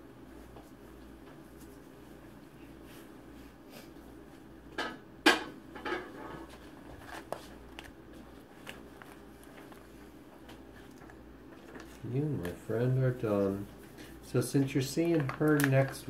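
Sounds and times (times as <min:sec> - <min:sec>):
packaging crinkles and clicks: 0:15.0 - 0:16.0.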